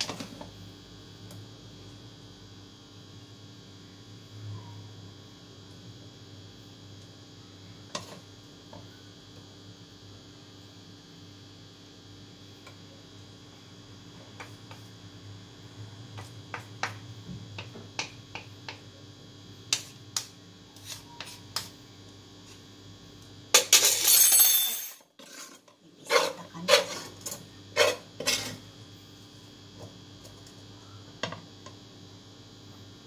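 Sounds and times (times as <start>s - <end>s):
utensils and dishes clinking: 23.6s - 25.2s.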